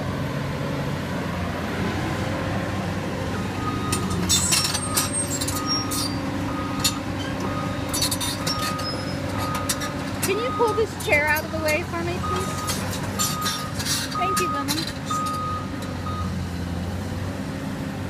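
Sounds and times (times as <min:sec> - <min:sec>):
excavator diesel engine running: 0:00.0 - 0:18.0
metal clinks and clanks: 0:03.9 - 0:16.0
short electronic beeps: 0:12.2 - 0:16.4.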